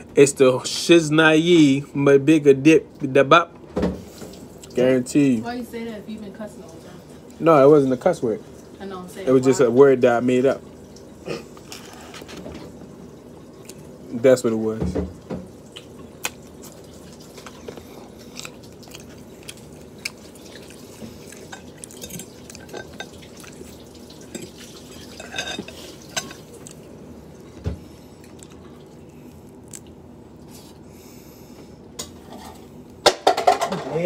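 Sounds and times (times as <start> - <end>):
faint steady hum: 0.0 - 34.0
chewing: 15.7 - 26.9, 28.1 - 30.8.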